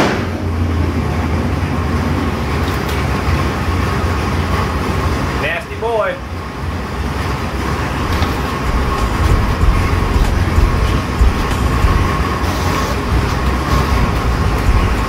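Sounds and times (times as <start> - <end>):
engine idling deep rumble: 6.8 - 15.0.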